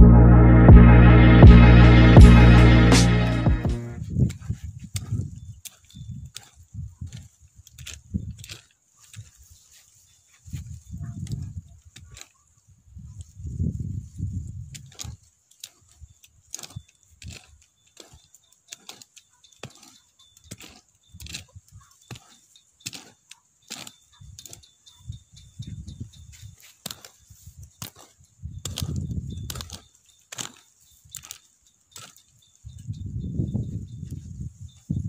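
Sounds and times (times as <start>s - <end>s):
low rumble: 0.0s - 4.0s
hoe striking dry soil: 2.2s - 9.4s, 14.6s - 34.2s.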